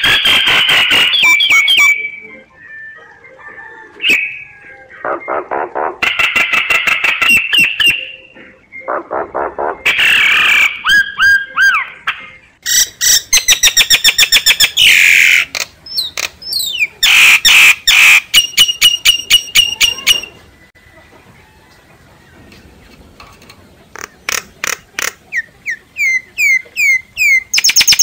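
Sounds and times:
myna calling: 0:00.0 - 0:21.1.

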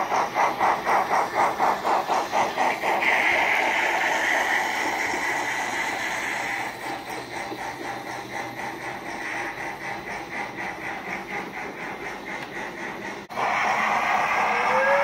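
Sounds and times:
hiss of steam: 0:00.0 - 0:15.0
model steam locomotive chuffing: 0:00.0 - 0:15.0.

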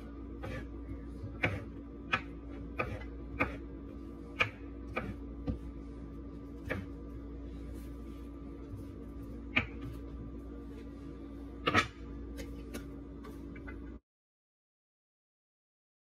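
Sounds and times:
knife chopping on wooden board: 0:00.4 - 0:00.7, 0:01.3 - 0:03.7, 0:04.3 - 0:05.7, 0:06.6 - 0:07.0, 0:09.5 - 0:10.0.

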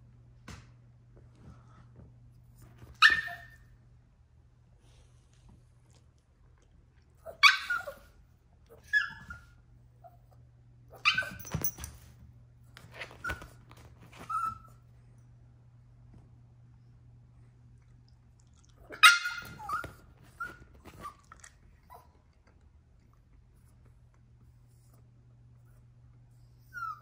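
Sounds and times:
puppy yapping: 0:03.0 - 0:03.6, 0:07.2 - 0:08.1, 0:08.7 - 0:09.5, 0:10.9 - 0:11.5, 0:18.9 - 0:21.3.

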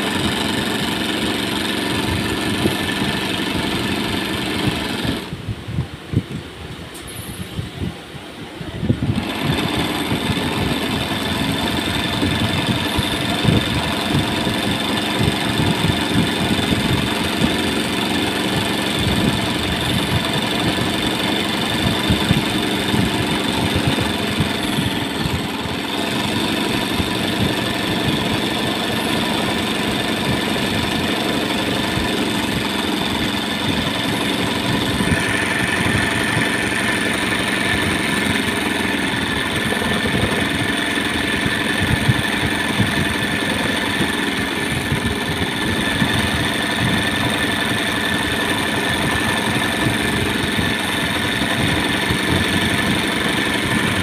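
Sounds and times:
embroidery sewing machine running: 0:00.0 - 0:05.4, 0:09.1 - 0:54.0.

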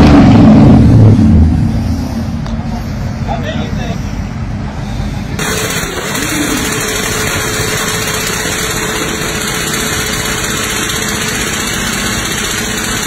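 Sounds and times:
motorcycle engine at high revs: 0:05.4 - 0:13.0.

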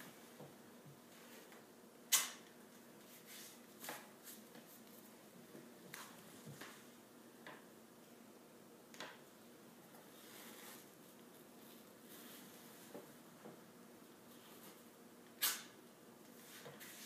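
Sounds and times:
athletic tape ripping: 0:15.4 - 0:15.7.

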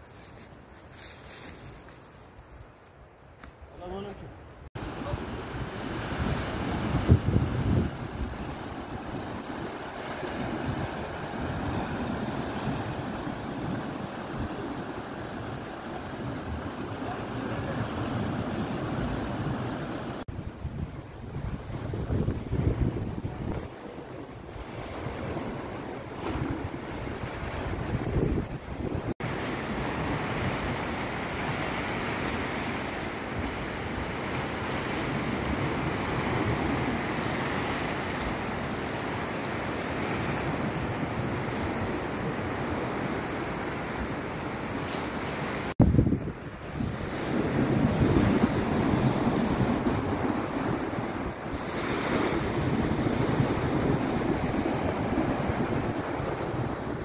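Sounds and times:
wind buffeting microphone: 0:05.1 - 0:30.8, 0:45.1 - 0:57.0.

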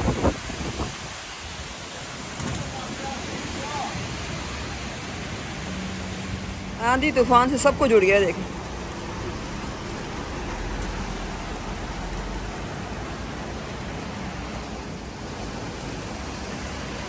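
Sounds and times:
storm wind with rain: 0:00.0 - 0:17.0
wind buffeting microphone: 0:00.0 - 0:17.0.

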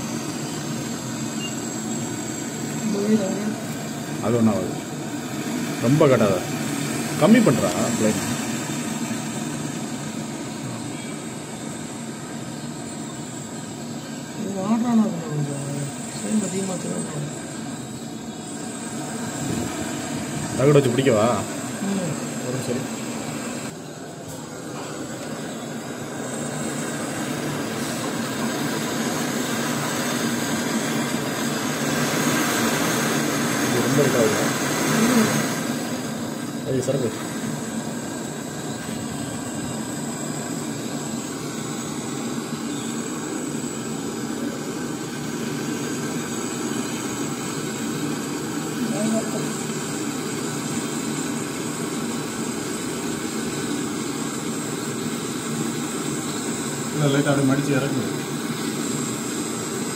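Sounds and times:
torch flame hissing: 0:00.0 - 0:59.9.

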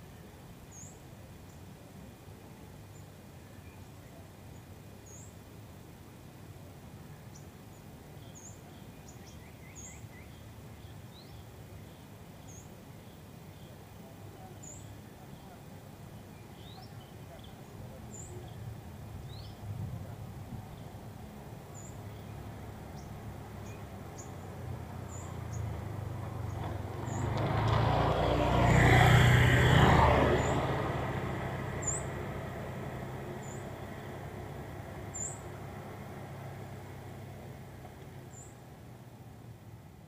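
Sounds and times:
vehicle passing: 0:22.3 - 0:38.4.

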